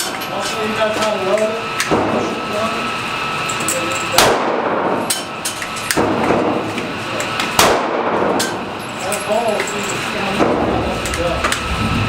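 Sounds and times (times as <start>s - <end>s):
pistol shots echoing indoors: 4.2s - 5.2s, 5.9s - 6.7s, 7.4s - 8.7s.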